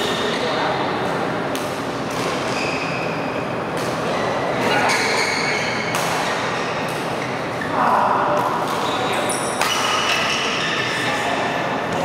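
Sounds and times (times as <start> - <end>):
indoor hall ambient noise: 0.0 - 12.0
shoes squeaking on court: 2.2 - 3.3.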